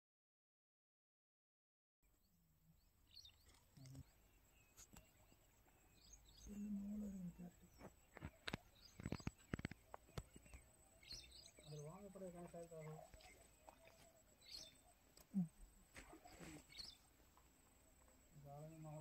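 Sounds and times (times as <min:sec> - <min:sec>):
faint bird chirps: 0:02.1 - 0:19.0
low voice-like hum: 0:06.4 - 0:07.8.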